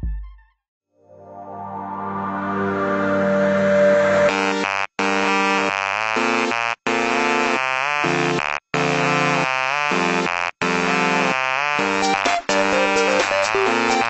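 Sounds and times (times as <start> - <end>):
buzzy synthesizer sequence: 1.2 - 6.6, 11.8 - 14.0.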